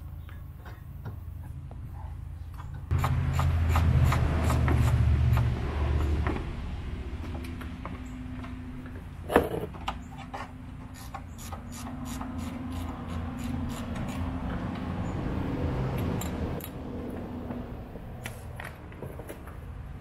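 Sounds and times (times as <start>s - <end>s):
tools clicking and scraping metal: 9.3s - 14.6s.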